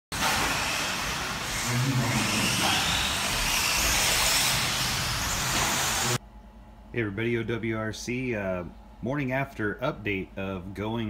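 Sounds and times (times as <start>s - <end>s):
radio-controlled car motors whining: 0.2s - 6.2s
steady dense hiss: 4.5s - 6.2s.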